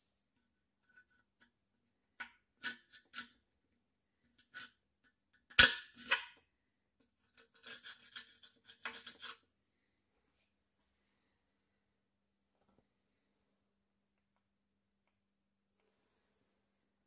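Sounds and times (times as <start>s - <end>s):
metal tool scraping rust: 7.3s - 9.4s.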